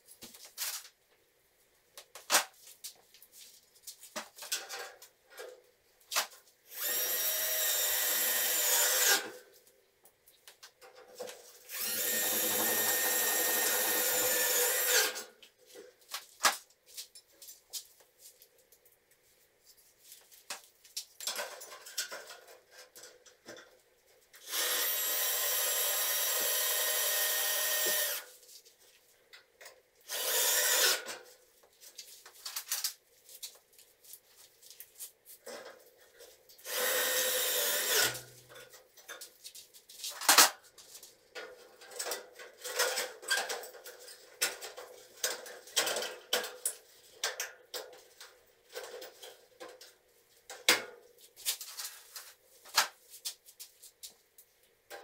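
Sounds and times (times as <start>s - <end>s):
power drill running: 6.7s - 9.3s, 11.7s - 15.2s, 24.4s - 28.3s, 30.1s - 31.0s, 36.6s - 38.2s.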